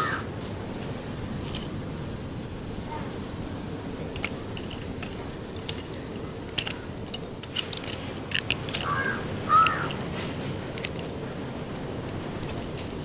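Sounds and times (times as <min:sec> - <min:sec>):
crow cawing: 0:00.0 - 0:00.3, 0:08.8 - 0:10.0
knife scraping mussel shells: 0:01.4 - 0:01.8, 0:04.0 - 0:11.2.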